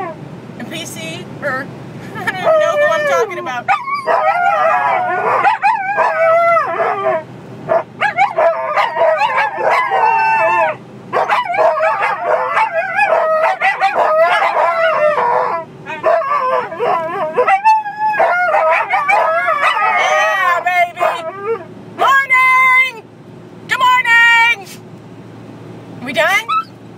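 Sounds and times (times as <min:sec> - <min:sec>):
dogs howling together: 0:02.3 - 0:21.7.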